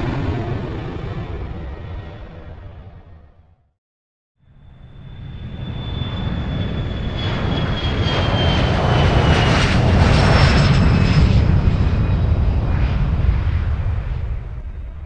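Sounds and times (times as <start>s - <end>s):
airplane flying past: 4.5s - 15.0s.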